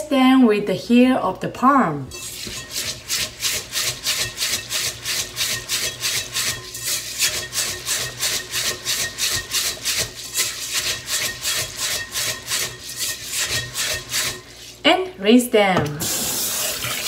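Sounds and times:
hand rubbing rice in a pot: 0:02.2 - 0:14.8.

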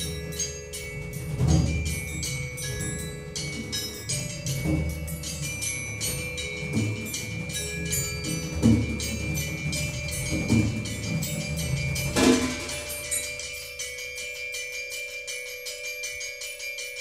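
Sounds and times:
mallet percussion ringing notes: 0:00.0 - 0:17.0
low percussion stroke: 0:11.9 - 0:13.7.

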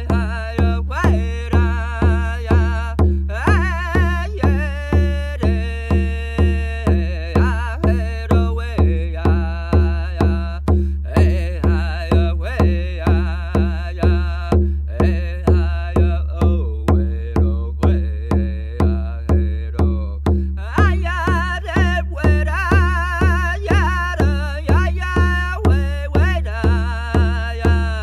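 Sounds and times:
drum beating steadily: 0:00.0 - 0:28.0
person singing with wavering pitch: 0:00.0 - 0:28.0
singer breathing: 0:03.0 - 0:03.4, 0:10.6 - 0:11.1, 0:14.6 - 0:14.9, 0:20.2 - 0:20.6.

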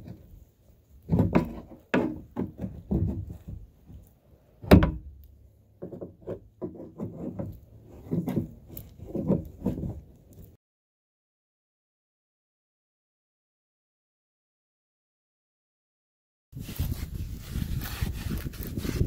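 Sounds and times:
knocks and rubs on plastic: 0:01.1 - 0:03.6.

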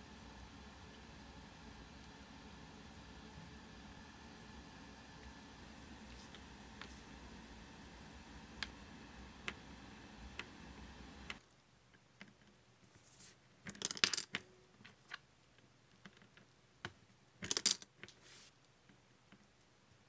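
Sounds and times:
coins clinking into metal bank: 0:13.7 - 0:14.4, 0:17.4 - 0:17.9.

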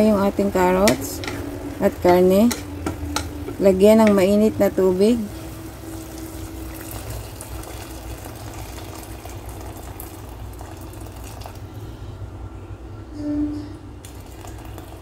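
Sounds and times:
hot water pouring into a pot: 0:05.4 - 0:11.9, 0:14.0 - 0:15.0.

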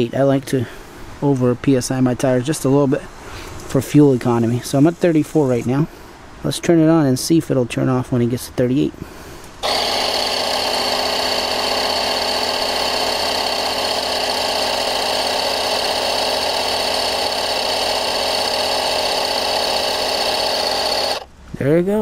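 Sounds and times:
electric air compressor running: 0:09.6 - 0:21.3.

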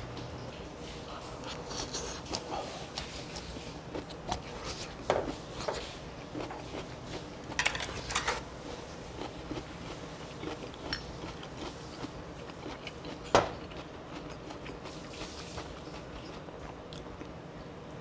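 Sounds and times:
tableware clinking: 0:07.6 - 0:08.4.

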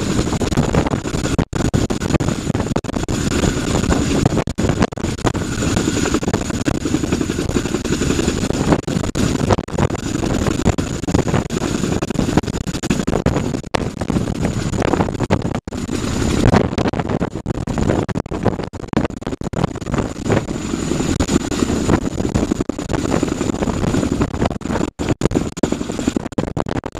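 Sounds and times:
helicopter hovering: 0:00.0 - 0:26.9
rotor wash buffeting microphone: 0:00.0 - 0:26.9.

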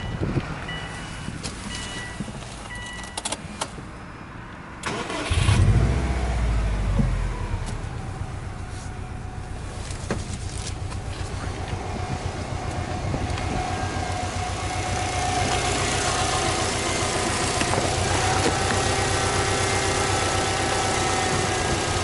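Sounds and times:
car warning chime beeping: 0:00.0 - 0:03.4
car engine starting and idling: 0:04.7 - 0:22.0.

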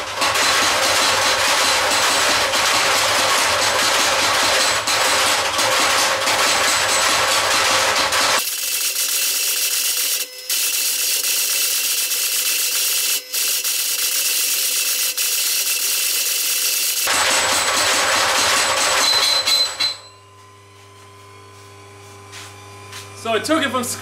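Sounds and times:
power hammer pounding steel: 0:00.0 - 0:08.9, 0:13.2 - 0:20.1.

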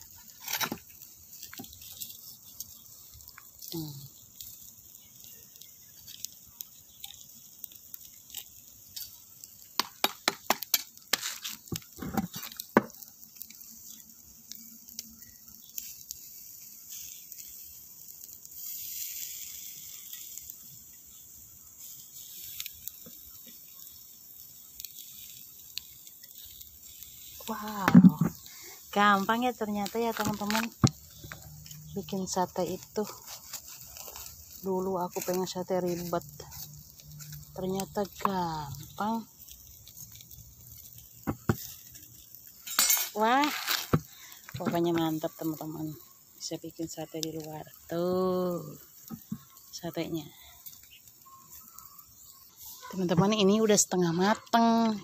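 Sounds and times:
embers crackling: 0:00.0 - 0:55.0
meat sizzling on a grill: 0:00.0 - 0:55.0
sharp pops: 0:09.7 - 0:13.0, 0:41.2 - 0:41.8.

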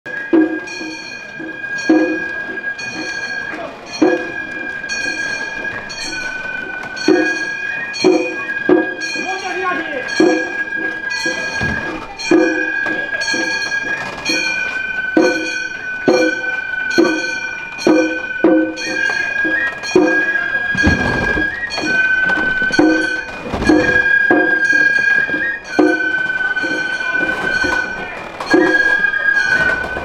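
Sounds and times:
small brass gongs clanging: 0:00.1 - 0:30.0
low thuds: 0:10.1 - 0:26.2
bamboo flute high note: 0:16.2 - 0:30.0.

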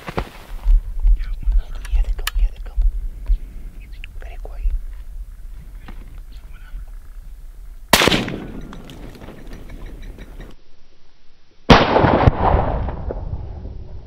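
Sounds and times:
rifle shots with echo: 0:07.9 - 0:09.6, 0:11.7 - 0:13.2.

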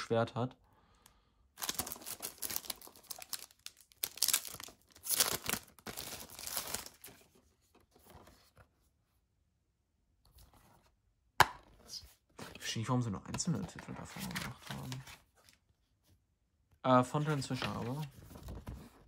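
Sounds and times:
plastic film tearing and crinkling: 0:01.6 - 0:07.2.

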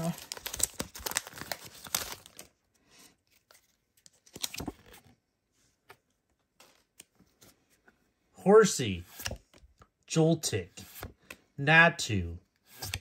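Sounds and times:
foil wrapper crinkling and tearing: 0:00.0 - 0:02.6.

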